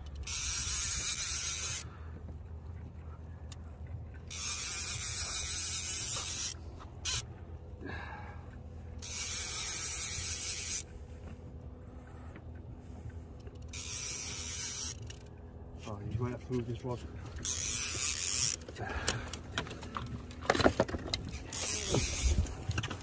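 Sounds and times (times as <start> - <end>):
fishing reel drag buzzing: 0.0 - 2.0, 4.3 - 7.3, 9.0 - 11.0, 13.5 - 15.4, 17.3 - 18.7, 21.5 - 22.8.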